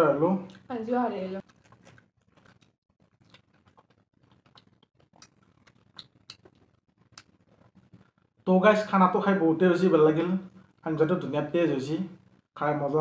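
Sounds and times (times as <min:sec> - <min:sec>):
soft mouth clicks and smacks: 0:01.4 - 0:08.1
person eating: 0:01.4 - 0:08.4.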